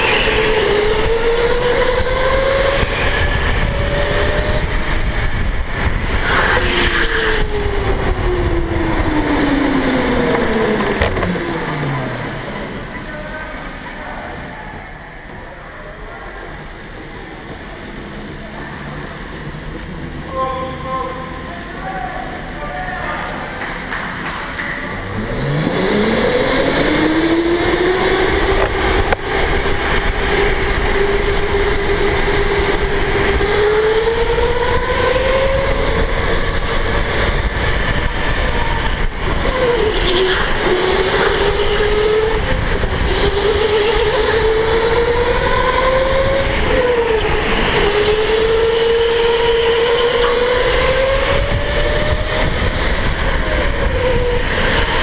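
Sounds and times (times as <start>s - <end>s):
electric go-kart motor whining: 0.0s - 13.1s, 24.9s - 55.0s
steady low rumble: 2.7s - 21.6s.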